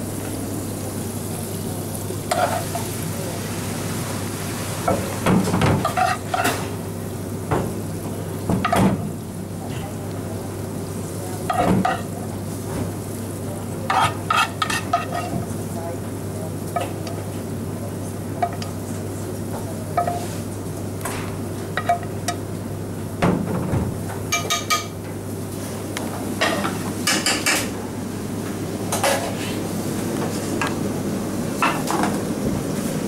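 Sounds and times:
pan and utensils clattering: 0:04.8 - 0:06.8, 0:13.9 - 0:15.5, 0:28.9 - 0:29.6.

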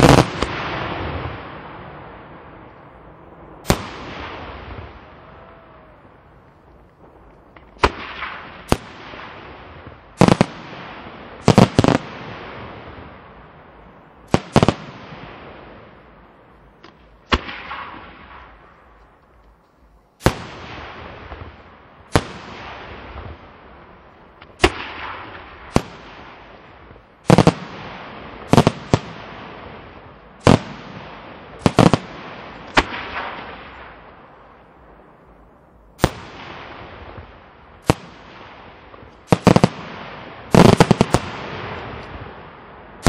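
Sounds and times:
fireworks bursting with echo: 0:00.0 - 0:43.0.

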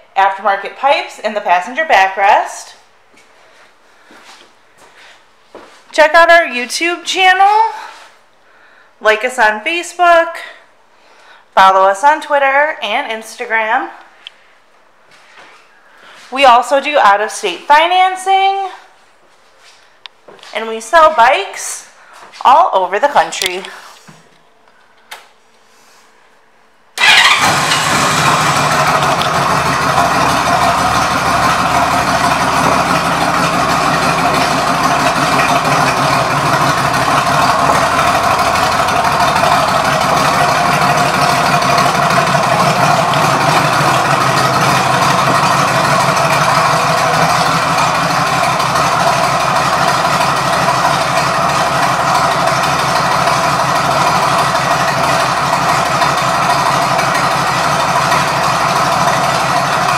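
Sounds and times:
motorcycle engine idling: 0:27.0 - 0:59.9.

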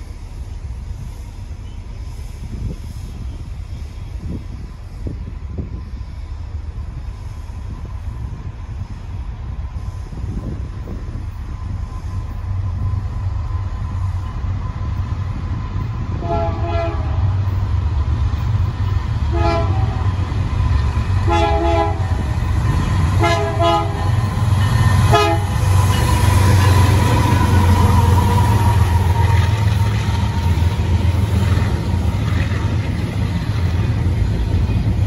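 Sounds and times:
train wheels rolling: 0:00.0 - 0:35.0
diesel engines rumbling: 0:06.1 - 0:35.0
locomotive horn blasts: 0:16.1 - 0:17.3, 0:19.3 - 0:20.2, 0:21.2 - 0:22.4, 0:23.2 - 0:24.4, 0:25.0 - 0:25.8.

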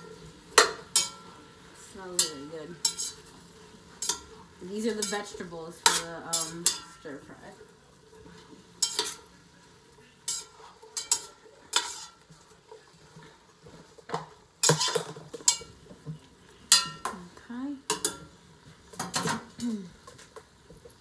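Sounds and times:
utensil stirring vegetables in pot: 0:00.0 - 0:21.0
utensil scraping metal pot: 0:02.0 - 0:07.5, 0:08.8 - 0:09.3, 0:10.2 - 0:13.4, 0:14.6 - 0:15.8.

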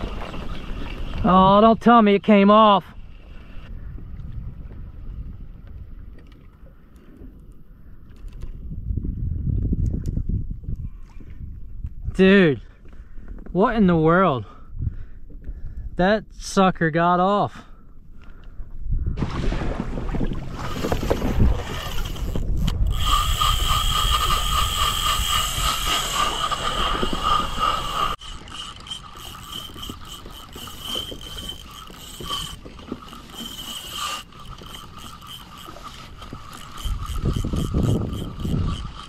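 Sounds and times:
water: 0:00.0 - 0:39.0
fishing reel ratcheting: 0:20.6 - 0:39.0.

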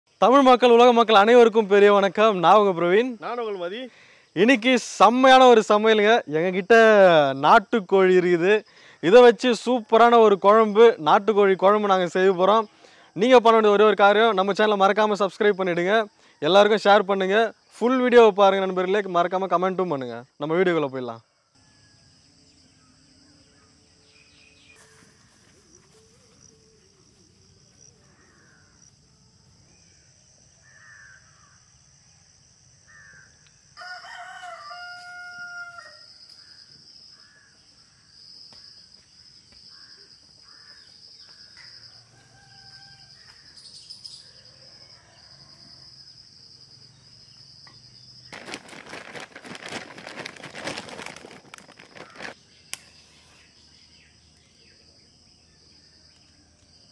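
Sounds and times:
high insect drone: 0:21.6 - 0:56.9
rooster crowing: 0:33.8 - 0:36.2, 0:41.8 - 0:43.6, 0:44.3 - 0:46.0.

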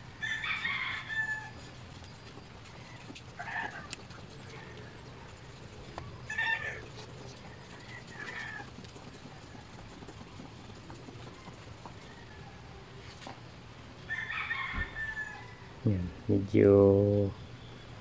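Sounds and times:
steady low hum: 0:00.0 - 0:14.1
chicken calling: 0:02.7 - 0:09.7.

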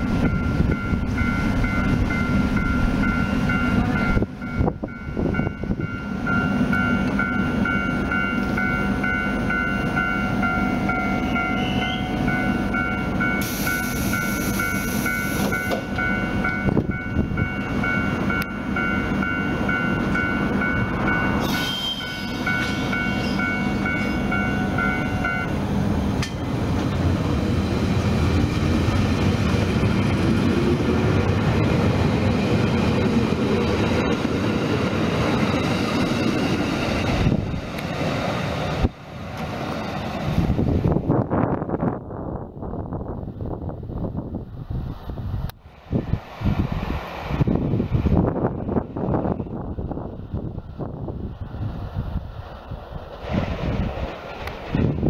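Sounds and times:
train equipment high tone: 0:00.0 - 0:26.6, 0:35.1 - 0:37.9
train wheels rumbling: 0:00.0 - 0:55.0
air hissing: 0:13.4 - 0:15.5.

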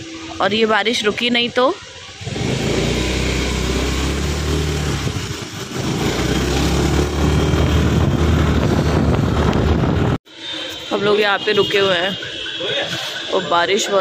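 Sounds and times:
road noise: 0:00.0 - 0:14.0
rushing wind: 0:00.0 - 0:14.0
motorbike engine running: 0:02.2 - 0:10.2.

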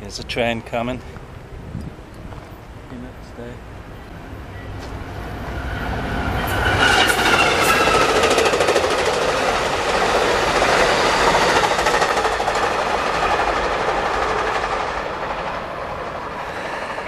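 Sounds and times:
passenger train passing: 0:00.0 - 0:17.0
wheels clicking over rails: 0:06.4 - 0:17.0.

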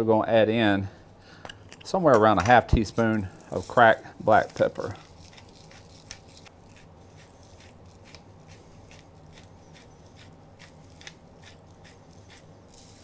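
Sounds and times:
pepper grinder crunching: 0:02.8 - 0:13.0.

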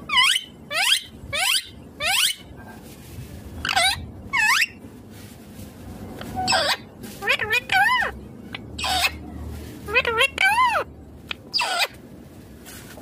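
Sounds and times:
parakeet high calls: 0:00.1 - 0:02.5, 0:03.6 - 0:04.8, 0:06.4 - 0:09.2, 0:09.9 - 0:12.0.

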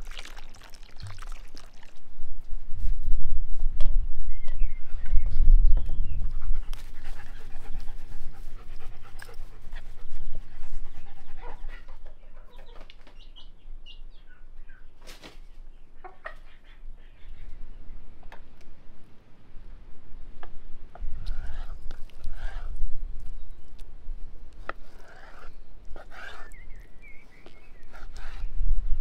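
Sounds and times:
chicks peeping: 0:12.0 - 0:14.8
hen clucking: 0:16.0 - 0:17.5.

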